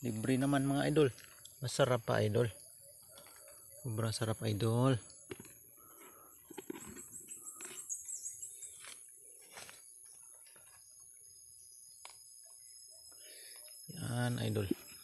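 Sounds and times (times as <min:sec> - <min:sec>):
high bird chirps: 0:06.3 - 0:09.1.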